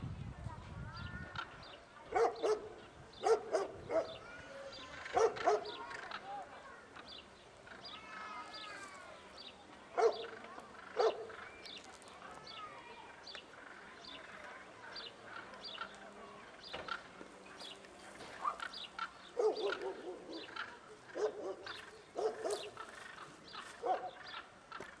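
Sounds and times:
small birds chirping: 0.8s - 25.0s
dog barking: 2.1s - 4.2s, 5.1s - 5.8s, 10.0s - 10.4s, 11.0s - 11.3s, 19.4s - 20.5s, 21.2s - 22.7s, 23.8s - 24.2s.

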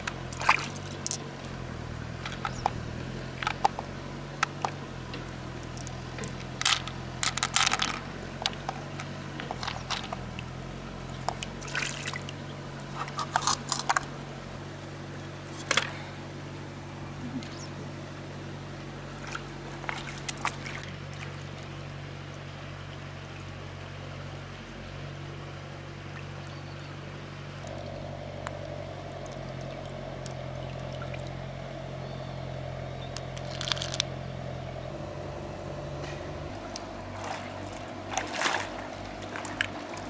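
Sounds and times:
water splashes: 0.0s - 14.2s, 19.0s - 23.7s, 26.0s - 31.6s, 36.5s - 40.0s
low motor drone: 0.0s - 40.0s.

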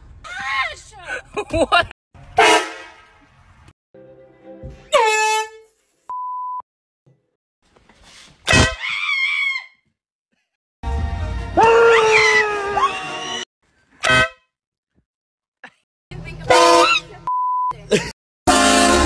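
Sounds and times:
air horn blasts: 2.4s - 3.2s, 4.9s - 5.7s, 14.0s - 14.4s, 16.5s - 17.0s, 18.5s - 19.0s
censor bleep: 6.1s - 6.6s, 17.3s - 17.8s
people screaming: 11.6s - 13.4s.

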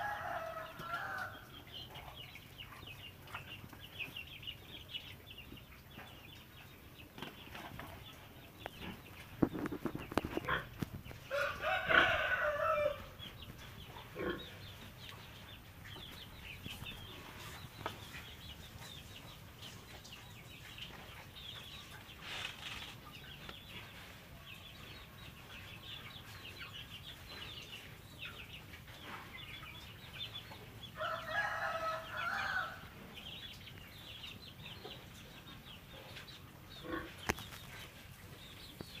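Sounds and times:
rooster crowing: 0.0s - 1.4s, 11.3s - 13.2s, 31.0s - 32.8s.

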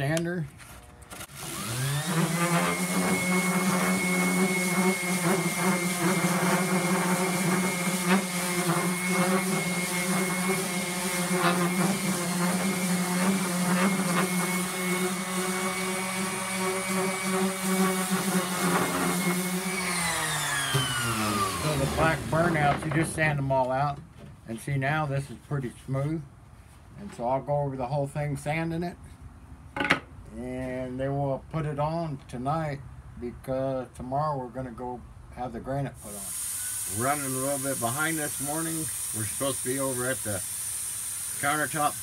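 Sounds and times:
palm sander whining: 0.6s - 23.9s, 36.0s - 42.0s.

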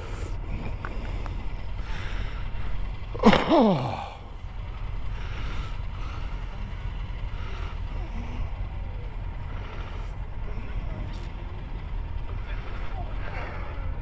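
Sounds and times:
motorcycle engine rumble: 0.0s - 14.0s
short falling vocal sound: 3.2s - 4.2s.

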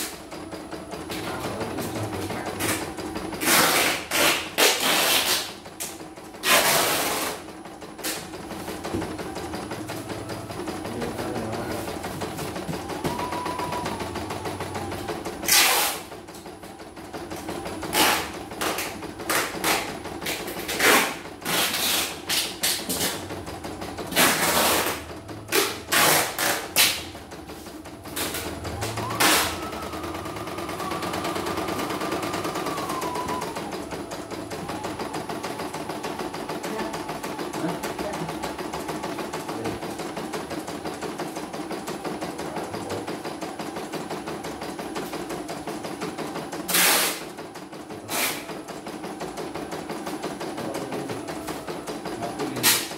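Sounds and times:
embroidery machine stitching: 0.0s - 52.9s
machine whine: 0.0s - 52.9s.

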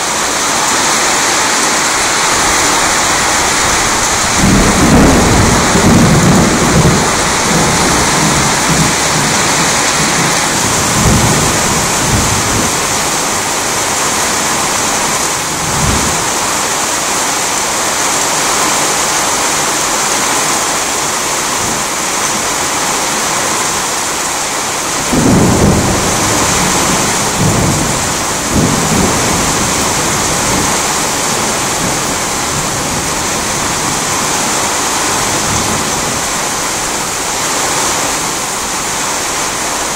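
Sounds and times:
heavy rain falling: 0.0s - 39.9s
thunder rumbling: 1.2s - 16.7s, 24.8s - 38.2s.

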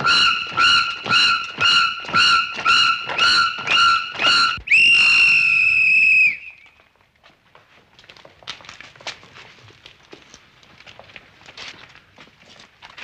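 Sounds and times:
whistle blowing: 0.0s - 6.8s
footsteps on cobblestones: 0.0s - 13.0s.

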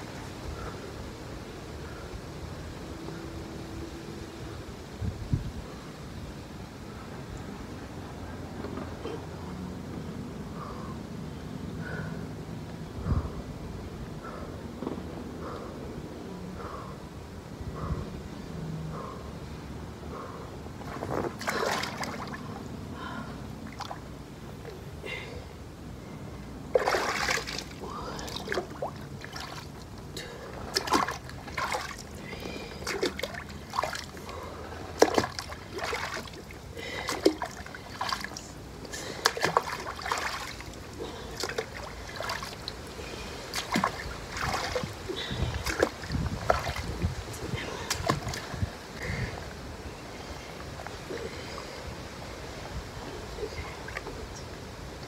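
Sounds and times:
water splashing in pool: 20.8s - 22.5s, 26.7s - 47.1s, 47.7s - 48.6s.

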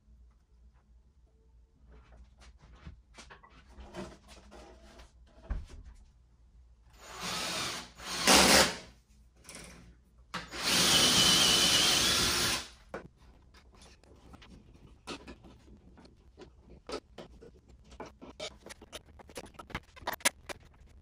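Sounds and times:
cordless drill boring: 7.0s - 8.8s, 10.4s - 12.7s.

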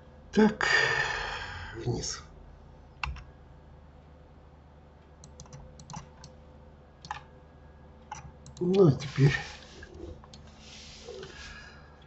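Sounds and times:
computer keyboard and mouse clicks: 3.0s - 3.3s, 5.2s - 6.4s, 7.0s - 7.3s, 8.0s - 8.8s.

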